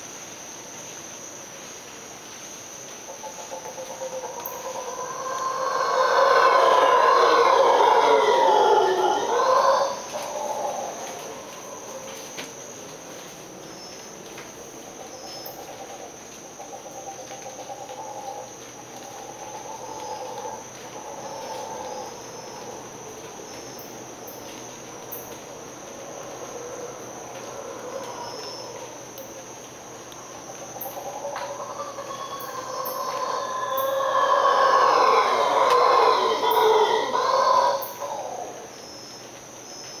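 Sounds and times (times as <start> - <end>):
high insect trill: 0.0 - 40.0
monkeys howling: 4.0 - 12.0, 30.3 - 38.7.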